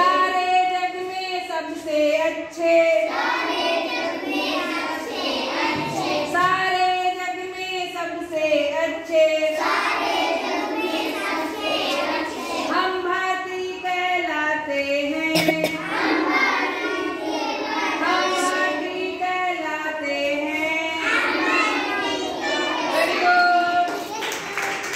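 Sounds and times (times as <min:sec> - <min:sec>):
children singing in unison: 0:03.0 - 0:06.5, 0:09.5 - 0:12.8, 0:15.7 - 0:19.1, 0:20.9 - 0:24.2.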